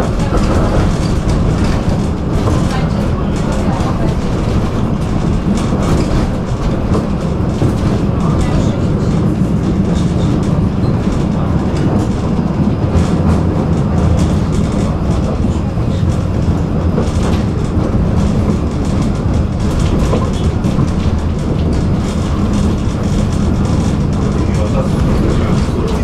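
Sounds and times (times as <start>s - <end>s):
tram wheels rumbling on track: 0.0s - 26.0s.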